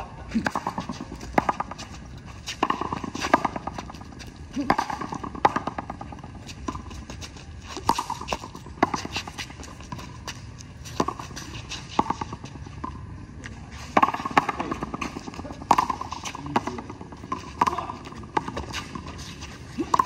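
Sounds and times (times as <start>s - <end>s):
ball hitting concrete wall: 0.4s - 1.8s, 2.6s - 3.8s, 4.6s - 6.1s, 14.0s - 19.1s.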